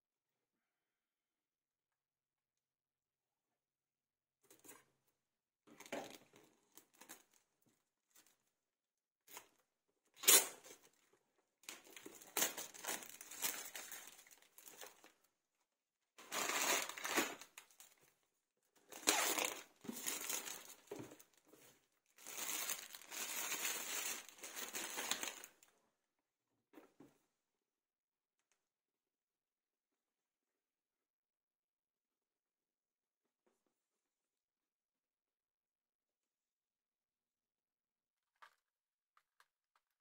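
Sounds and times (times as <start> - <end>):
plastic shrink wrap tearing: 11.8 - 15.0, 16.2 - 18.0, 18.9 - 20.9, 22.2 - 25.6.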